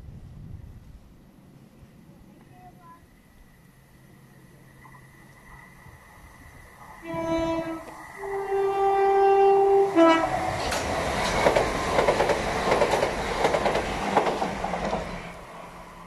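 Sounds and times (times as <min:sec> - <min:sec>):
two-tone train horn: 0:07.0 - 0:10.7
train wheels clattering: 0:07.0 - 0:15.4.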